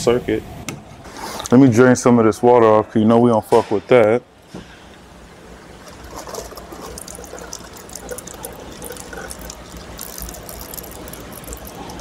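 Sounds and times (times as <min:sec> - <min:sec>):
water trickling and dribbling: 0:05.9 - 0:12.0.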